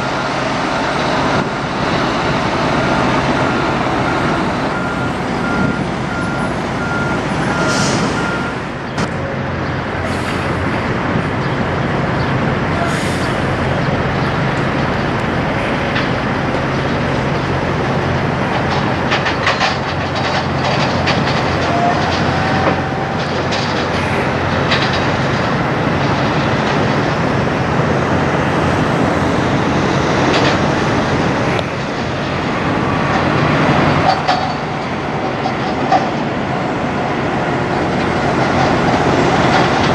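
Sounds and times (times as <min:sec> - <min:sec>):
semi-trucks driving past: 0:00.0 - 0:39.9.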